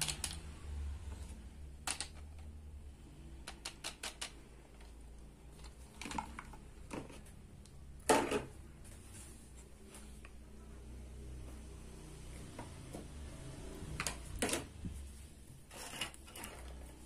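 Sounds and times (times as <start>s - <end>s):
plastic toy clattering: 0.0s - 0.4s, 1.8s - 2.6s, 3.5s - 4.9s, 5.6s - 7.2s
plastic toy pieces clicking: 0.0s - 0.5s, 1.8s - 2.6s, 3.4s - 4.4s.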